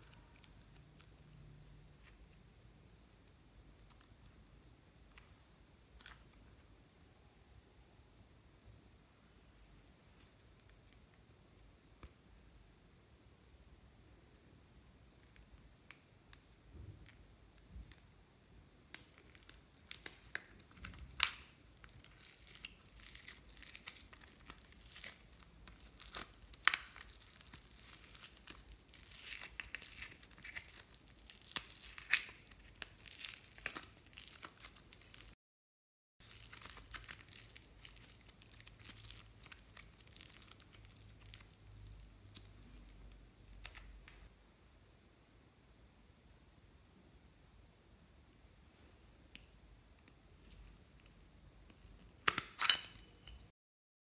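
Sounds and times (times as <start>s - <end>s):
slime squishing: 18.9s - 35.3s, 36.2s - 44.1s
thin plastic crinkling: 18.9s - 35.4s, 36.2s - 44.3s.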